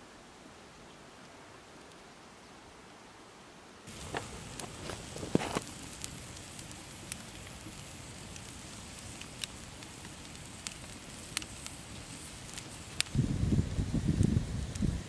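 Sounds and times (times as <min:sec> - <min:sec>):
campfire crackling and popping: 0:03.9 - 0:15.0
fire hiss: 0:03.9 - 0:15.0.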